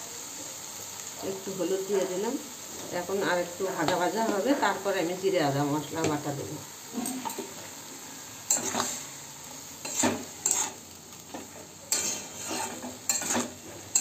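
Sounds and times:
frying sizzle in oil: 0.0s - 14.0s
metal spatula scraping a pan: 8.4s - 9.2s, 9.8s - 14.0s.

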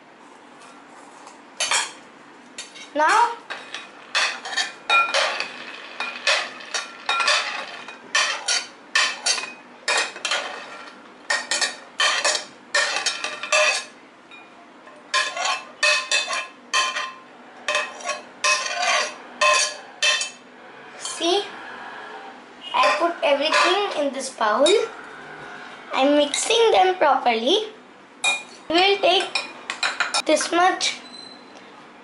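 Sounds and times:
spoon clinking against bowls: 11.3s - 14.5s, 15.1s - 20.4s.

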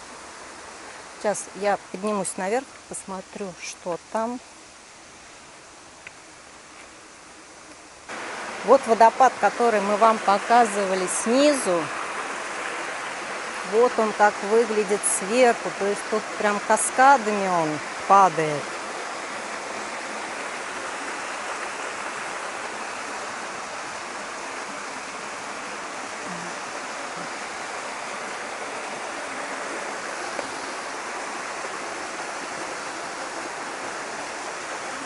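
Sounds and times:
waterfall rushing: 8.1s - 35.0s.

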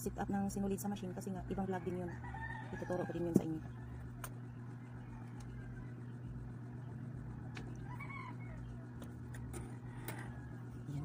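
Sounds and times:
steady low hum: 0.0s - 11.0s
faint chicken call: 7.5s - 9.0s.

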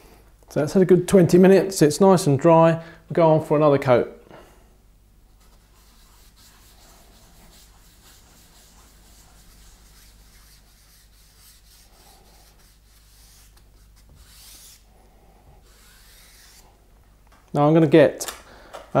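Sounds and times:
low steady hum: 0.0s - 19.0s
soft rubbing on wood: 5.3s - 16.8s.

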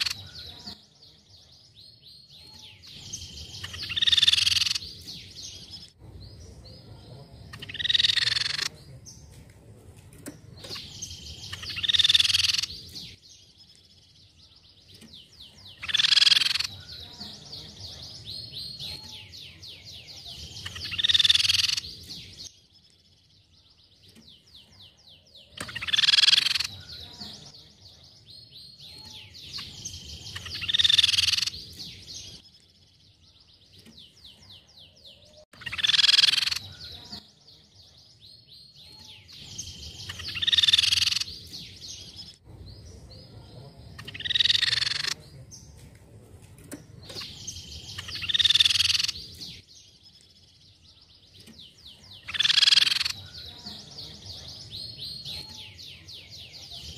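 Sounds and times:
bird calling: 0.0s - 0.8s, 2.4s - 5.9s, 7.5s - 9.0s, 10.6s - 13.2s, 15.3s - 17.4s, 18.4s - 22.4s, 25.3s - 27.5s, 28.9s - 32.4s, 35.2s - 37.2s, 38.9s - 42.3s, 44.0s - 45.3s, 47.1s - 49.6s, 52.0s - 54.0s
fast rattling bird trill: 2.5s - 5.6s, 7.5s - 8.7s, 10.6s - 13.2s, 15.5s - 17.0s, 20.3s - 22.4s, 25.5s - 27.5s, 29.0s - 32.4s, 35.6s - 37.0s, 39.5s - 41.7s, 44.0s - 45.2s, 47.1s - 49.6s, 52.1s - 53.5s.

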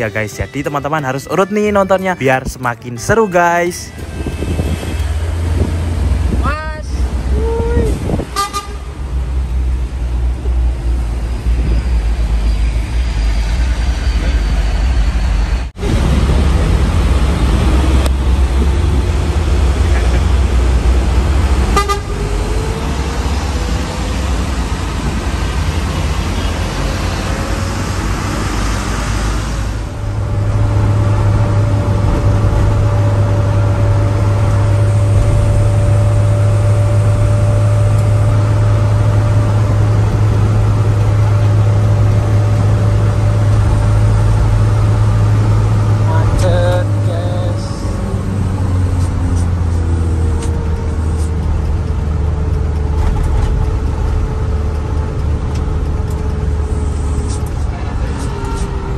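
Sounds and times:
road rumble: 0.0s - 58.9s
truck engine running: 14.9s - 58.9s
constant whine: 29.7s - 58.9s.

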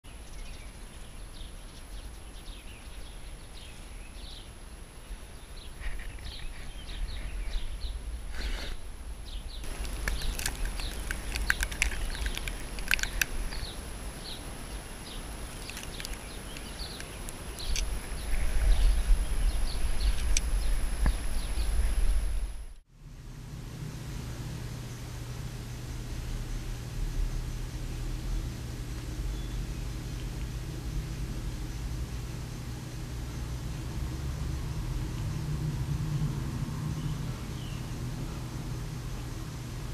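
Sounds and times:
small birds chirping: 0.0s - 22.8s, 25.9s - 34.1s, 36.1s - 39.9s
wind rumbling on microphone: 0.3s - 25.3s, 25.9s - 39.9s
sharp clicks: 9.6s - 13.8s, 15.5s - 18.0s.

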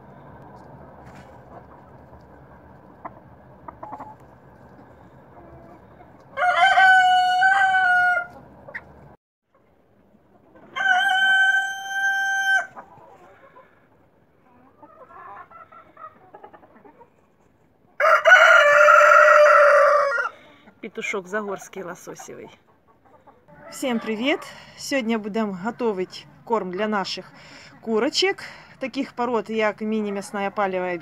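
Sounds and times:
faint hen clucking: 2.8s - 9.8s
rooster crowing: 6.3s - 8.3s, 10.8s - 12.7s, 18.0s - 20.4s.

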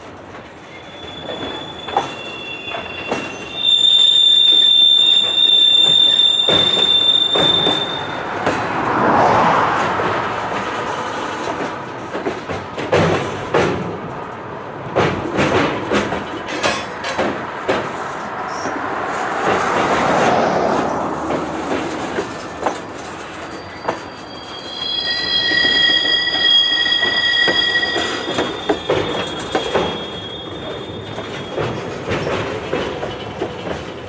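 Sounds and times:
freight cars rolling on track: 0.0s - 34.0s
wheels clacking over rail joints: 0.0s - 34.0s
high-pitched wheel squeal: 0.6s - 8.4s, 21.6s - 32.4s.

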